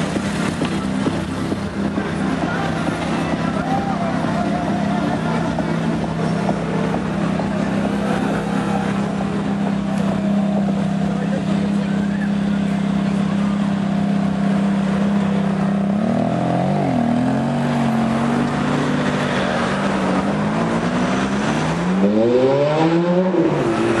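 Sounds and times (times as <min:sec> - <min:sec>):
car engine running: 0:00.0 - 0:22.5
engine revving: 0:00.0 - 0:24.0.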